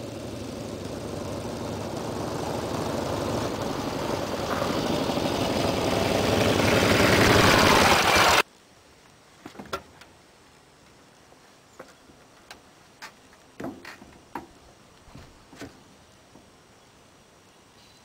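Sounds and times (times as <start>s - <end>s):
motorcycle engine running: 0.0s - 8.4s.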